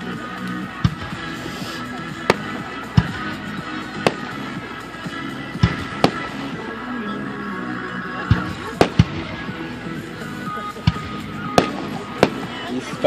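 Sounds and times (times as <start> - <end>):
background music: 0.0 - 13.0
fireworks bangs: 4.0 - 4.6, 5.5 - 6.4, 8.3 - 9.5, 10.8 - 12.6.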